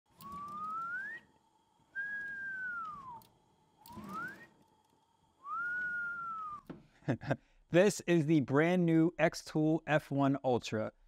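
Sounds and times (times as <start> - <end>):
man wolf whistling: 0.2 - 1.3, 1.9 - 3.3, 3.9 - 4.6, 5.4 - 6.7.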